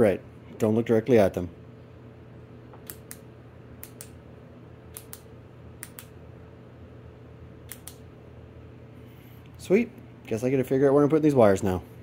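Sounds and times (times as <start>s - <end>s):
push-button switch clicks: 7.7s - 8.0s.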